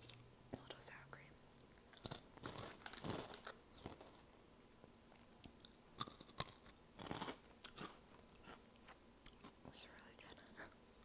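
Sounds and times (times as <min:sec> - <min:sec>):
crunching bites of chips: 0:01.6 - 0:04.2, 0:05.4 - 0:09.6
chip bag crinkling: 0:01.9 - 0:04.3.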